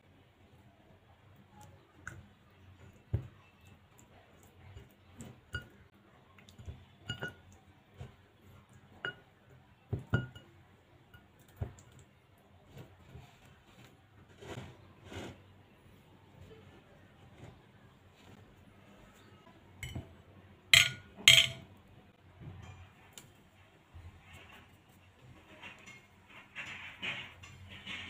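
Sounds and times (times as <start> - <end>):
drumsticks knocking against glass bowl: 20.8 - 21.6.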